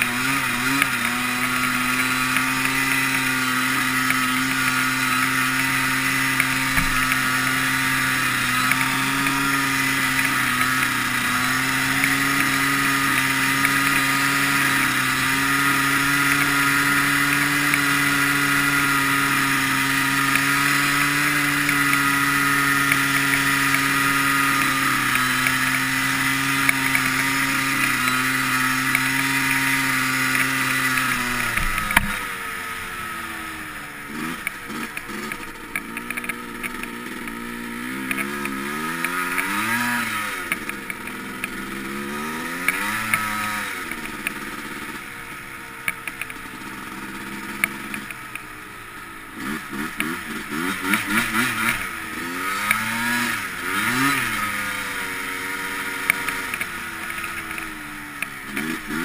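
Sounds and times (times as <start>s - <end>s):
quad engine revving: 0.0s - 59.0s
small clicks: 34.4s - 37.4s, 38.1s - 39.5s, 45.8s - 46.4s.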